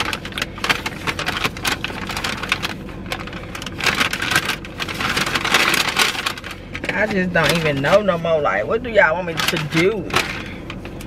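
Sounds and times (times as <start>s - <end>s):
paper bag crinkling: 0.0s - 11.0s.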